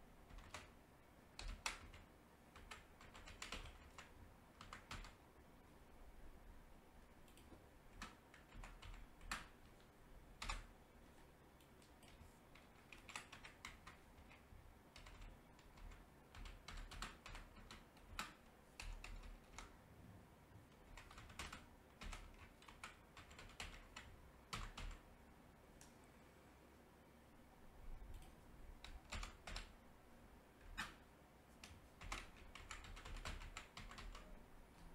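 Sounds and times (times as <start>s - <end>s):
faint keyboard typing: 0.2s - 5.3s, 7.0s - 26.0s, 27.9s - 29.8s, 30.6s - 34.9s.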